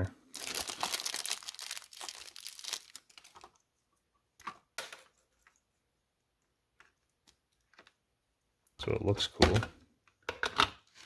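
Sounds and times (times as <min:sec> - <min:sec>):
plastic bag crinkling: 0:00.2 - 0:03.6.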